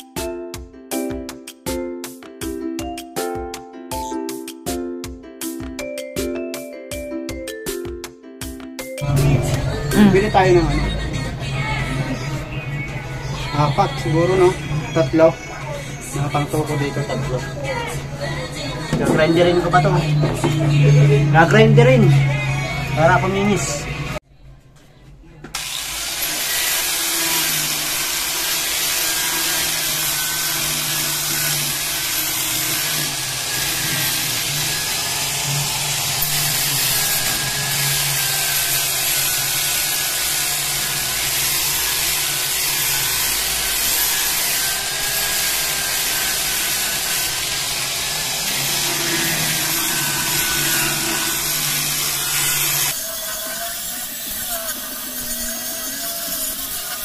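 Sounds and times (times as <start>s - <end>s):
angle grinder sanding wood: 25.6s - 57.0s.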